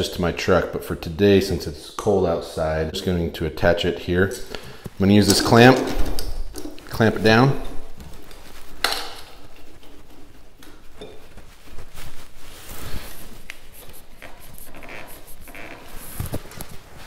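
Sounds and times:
handling noise: 4.6s - 17.0s.

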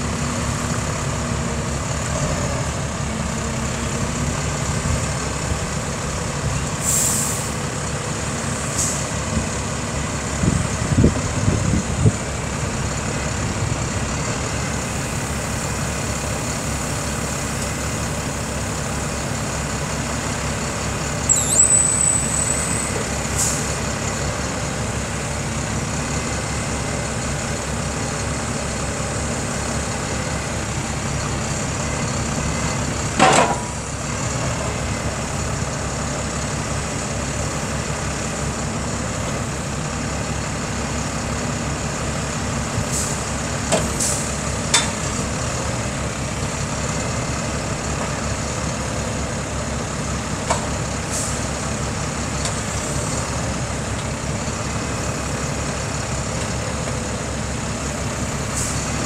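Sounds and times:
truck diesel engine running: 0.0s - 59.0s
short hisses: 6.8s - 7.6s
brief high squeal: 21.3s - 23.6s.

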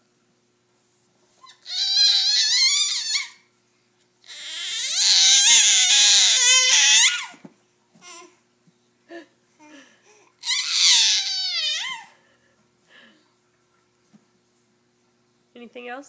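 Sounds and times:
baby squealing: 1.4s - 3.4s, 4.3s - 7.4s, 10.4s - 12.2s.

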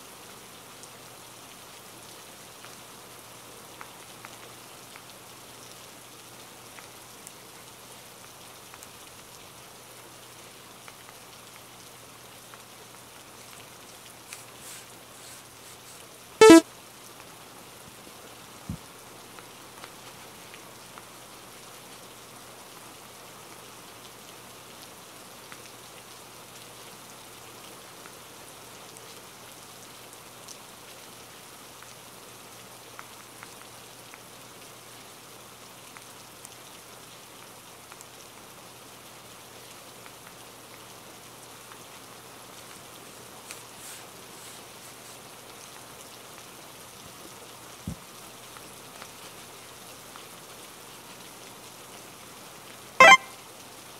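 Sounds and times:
steady rain falling: 0.0s - 53.9s
brief loud pitched sound: 16.4s - 16.6s, 53.0s - 53.3s.

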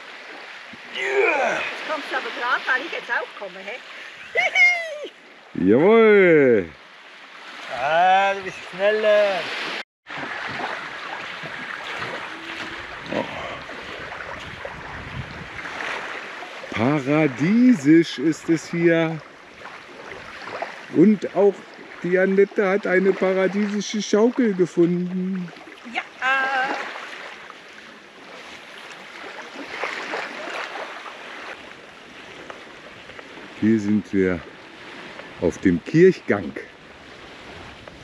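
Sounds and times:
light breeze: 0.0s - 38.0s
waves lapping on sand: 0.0s - 38.0s
wind on microphone: 10.2s - 17.3s, 36.8s - 38.0s.

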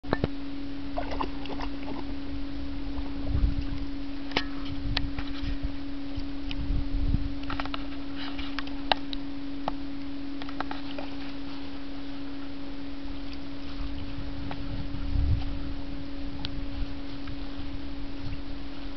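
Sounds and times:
steady low hum: 0.0s - 18.9s.

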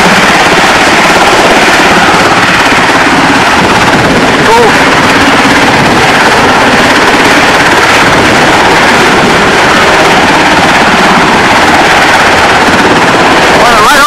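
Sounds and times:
helicopter rotor chopping: 0.0s - 14.0s
helicopter turbine noise: 0.0s - 14.0s.

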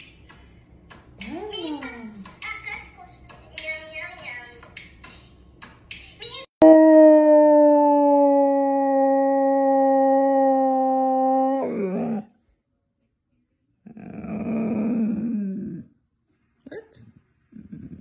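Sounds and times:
dog howling: 6.6s - 12.3s.

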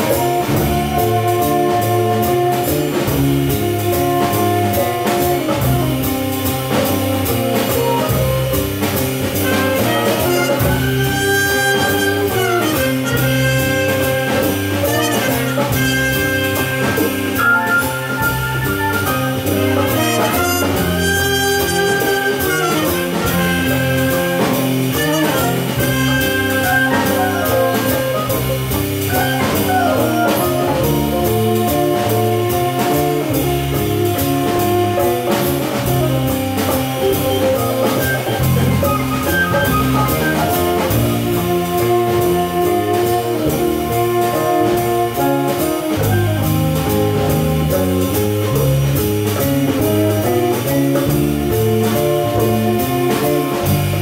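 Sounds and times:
jazz big band playing: 0.0s - 54.0s.

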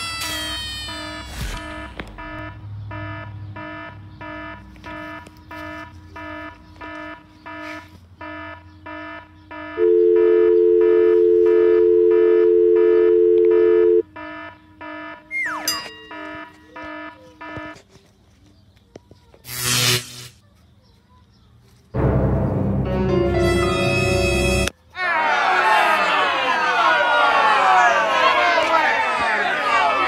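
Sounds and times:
electronic alarm beeping: 0.2s - 17.8s
loud steady tone: 0.3s - 17.8s.

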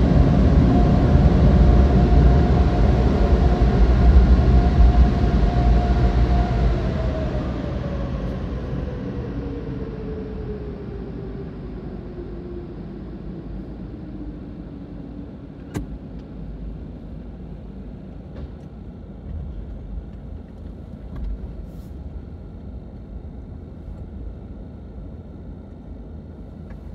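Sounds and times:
car engine and tyres rumbling: 0.0s - 9.9s, 10.6s - 24.8s
falling whine: 0.0s - 15.7s.

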